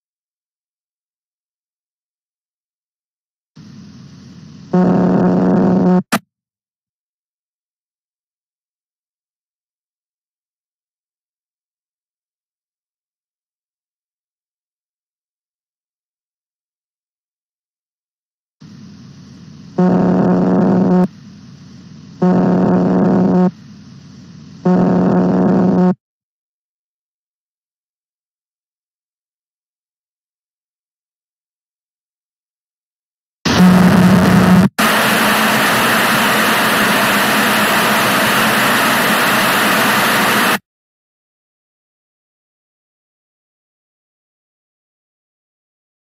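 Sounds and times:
harsh electronic buzzes: 0:03.6 - 0:06.2, 0:18.6 - 0:26.0, 0:33.5 - 0:40.6
static hiss: 0:03.6 - 0:06.2, 0:18.6 - 0:26.0, 0:33.5 - 0:40.6.

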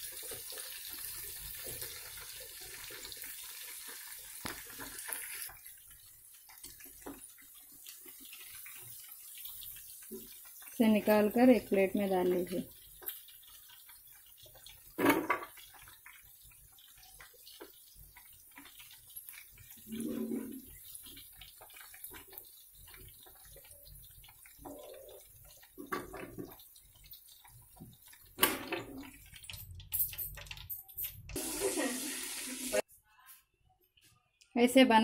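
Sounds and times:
oil bubbling and fizzing: 0:00.0 - 0:32.9.

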